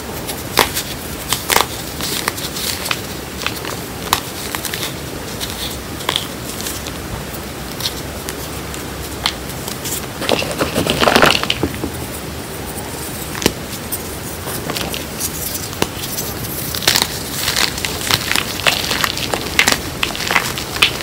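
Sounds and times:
chalk crumbling and crunching: 0:00.1 - 0:07.0, 0:07.7 - 0:21.0
sharp crack: 0:16.7 - 0:21.0.

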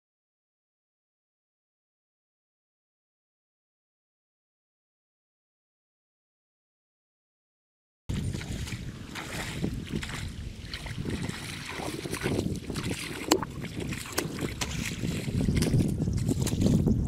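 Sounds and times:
muddy water sloshing: 0:08.1 - 0:16.9
wind buffeting microphone: 0:08.1 - 0:17.0.

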